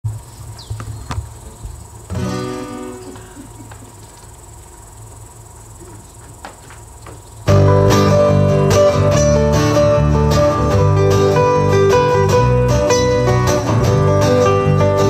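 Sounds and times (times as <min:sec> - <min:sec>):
crickets chirring: 0:00.0 - 0:15.0
low amplifier hum: 0:00.1 - 0:15.0
acoustic guitar chord strummed: 0:02.1 - 0:03.8, 0:07.5 - 0:15.0.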